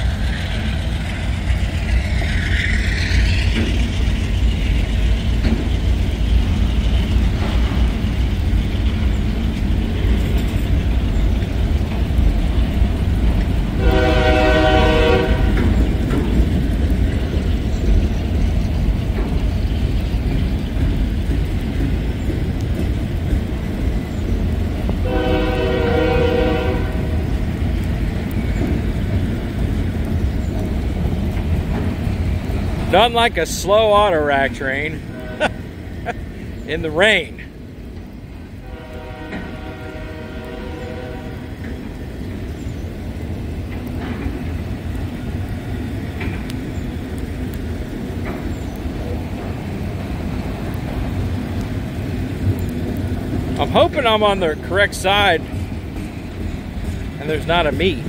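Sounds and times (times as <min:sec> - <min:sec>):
train rumbling: 0:00.0 - 0:58.0
locomotive air horn blasts: 0:13.8 - 0:15.8, 0:25.0 - 0:27.2, 0:38.6 - 0:41.5.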